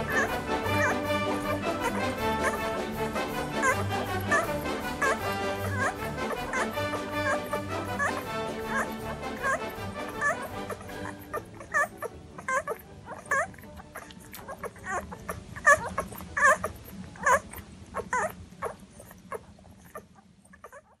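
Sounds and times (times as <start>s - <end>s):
puppies squeaking and whimpering: 0.0s - 21.0s.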